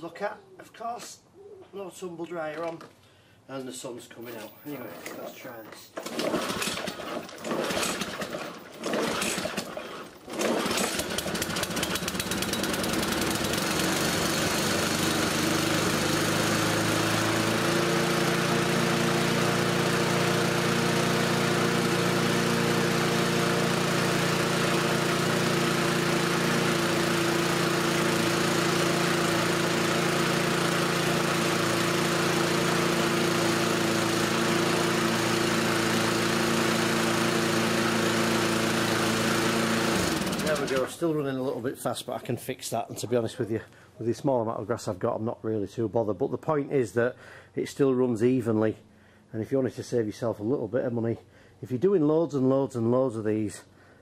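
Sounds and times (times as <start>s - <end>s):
lawnmower engine running: 6.0s - 41.1s.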